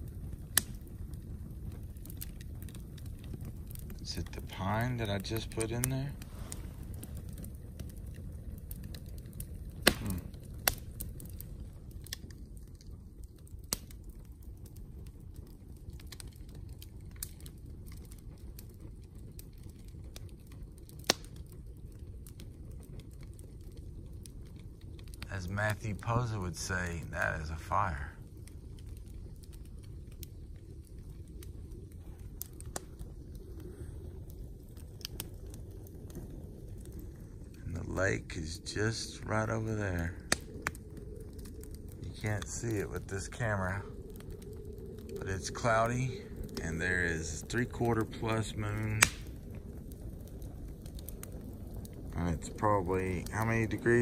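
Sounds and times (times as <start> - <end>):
campfire pops and snaps: 0.0 - 54.0
low rumble of flame: 0.0 - 54.0
wood fire crackling: 0.0 - 54.0
sharp wood pops: 9.8 - 10.8, 49.0 - 49.3.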